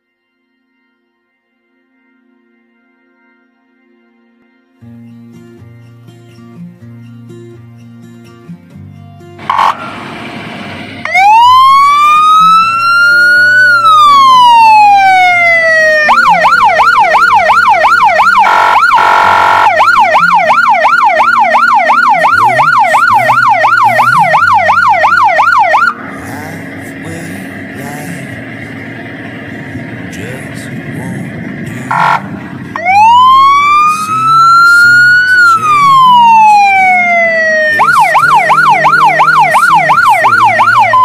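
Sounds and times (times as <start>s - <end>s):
fire engine siren wail and yelp: 9.4s - 41.0s
horn blast: 9.4s - 41.0s.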